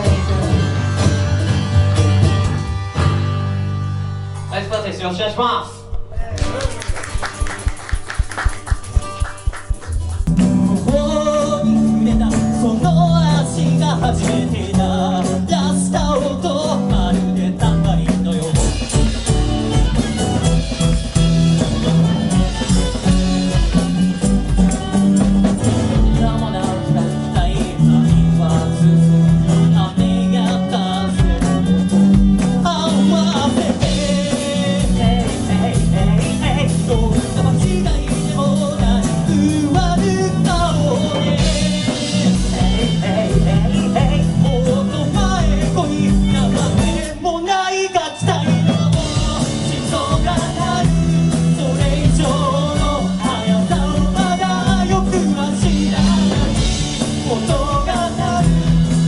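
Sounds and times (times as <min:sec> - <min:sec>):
electric bass: 0:00.0 - 0:47.4, 0:48.2 - 0:59.0
acoustic guitar: 0:00.0 - 0:59.0
drum beat: 0:05.8 - 0:47.4, 0:48.2 - 0:59.0
violin melody: 0:19.2 - 0:26.8.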